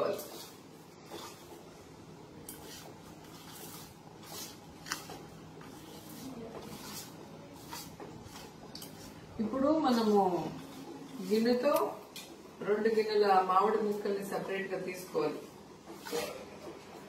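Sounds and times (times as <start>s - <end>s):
fingers scraping powder in steel bowl: 2.4s - 11.7s.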